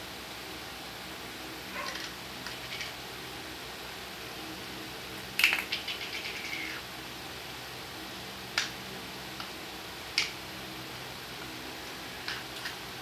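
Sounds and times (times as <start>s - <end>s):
small object clattering on tiles: 5.4s - 6.2s.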